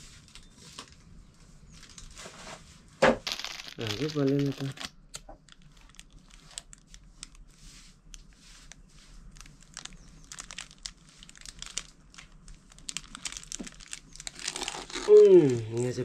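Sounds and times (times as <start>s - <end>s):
kindling crackling: 3.6s - 7.4s, 8.1s - 16.0s.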